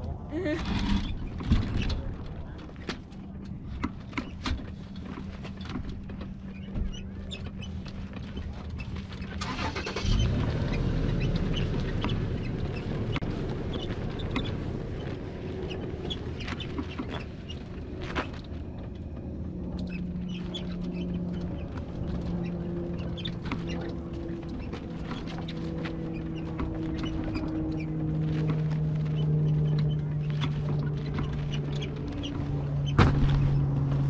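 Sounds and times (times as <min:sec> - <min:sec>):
steady low hum: 0:00.0 - 0:34.0
wind rumbling on microphone: 0:10.0 - 0:34.0
footsteps on dry dirt: 0:10.3 - 0:34.0.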